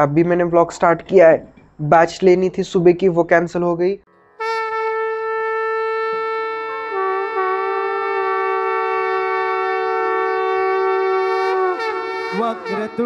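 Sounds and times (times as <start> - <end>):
conch shell blown: 4.4 - 13.0.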